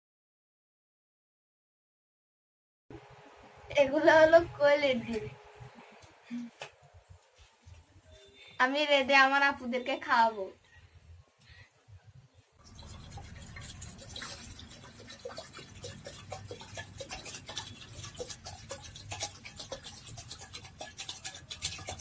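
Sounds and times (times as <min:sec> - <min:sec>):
water pouring into metal pot: 0:12.6 - 0:22.0.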